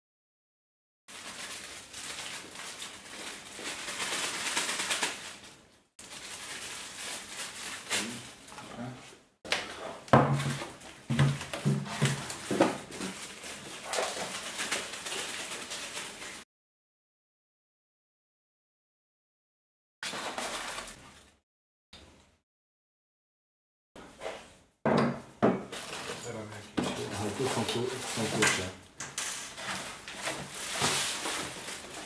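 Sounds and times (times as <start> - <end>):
rustling plastic wrapping: 1.1 - 8.6, 10.4 - 16.4, 20.1 - 21.3, 25.7 - 28.7, 29.5 - 32.0.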